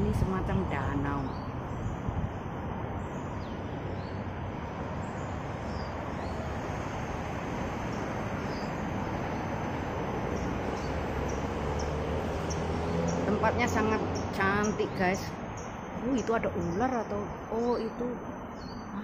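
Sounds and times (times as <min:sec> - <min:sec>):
road traffic: 0:00.0 - 0:19.0
bird chirps: 0:10.2 - 0:19.0.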